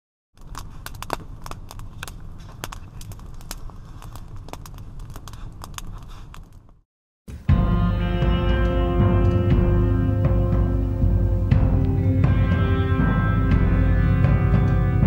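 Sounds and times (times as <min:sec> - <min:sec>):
wood fire crackling: 0:00.4 - 0:06.8.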